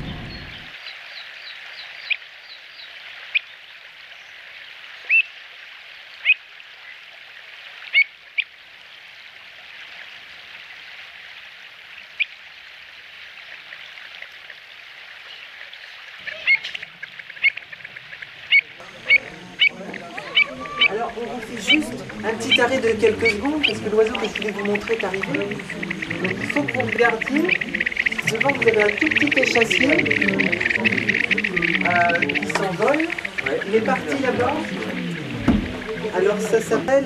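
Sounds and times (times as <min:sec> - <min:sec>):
sharp bird calls: 0:00.0 - 0:03.6, 0:15.2 - 0:36.7
steady hiss: 0:17.4 - 0:37.0.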